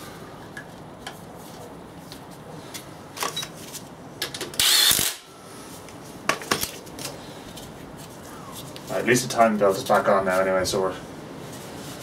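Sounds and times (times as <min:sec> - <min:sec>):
loud burst of tool noise: 0:04.6 - 0:05.3.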